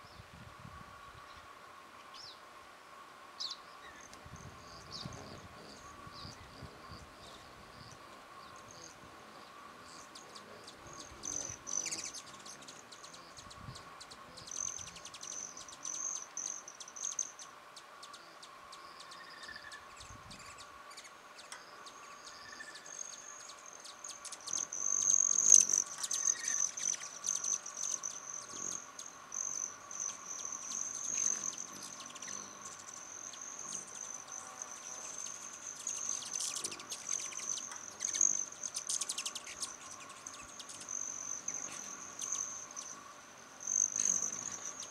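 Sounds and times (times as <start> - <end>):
hummingbird buzzing trill: 3.9 - 44.9.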